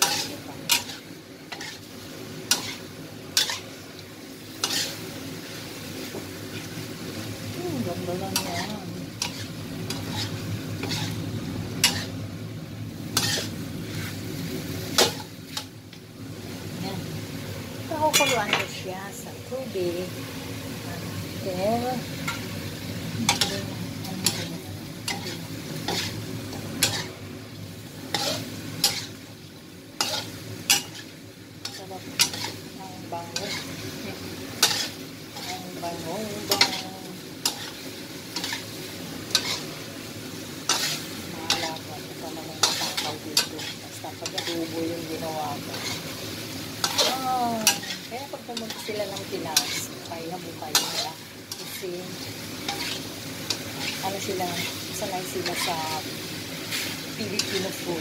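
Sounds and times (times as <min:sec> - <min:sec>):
spatula scraping a pan: 0:00.0 - 0:01.9, 0:02.5 - 0:03.8, 0:04.6 - 0:05.1, 0:08.3 - 0:12.2, 0:13.1 - 0:14.3, 0:23.3 - 0:27.2, 0:28.1 - 0:29.2, 0:30.0 - 0:38.7, 0:39.3 - 0:39.8, 0:40.6 - 0:50.1, 0:50.7 - 0:56.0, 0:56.6 - 0:58.0
meat sizzling in a frying pan: 0:00.0 - 0:58.0.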